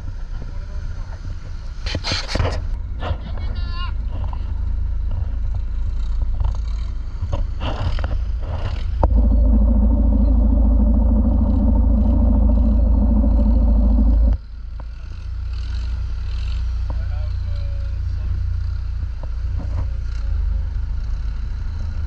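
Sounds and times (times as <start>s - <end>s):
boat engine running: 9.0s - 14.4s.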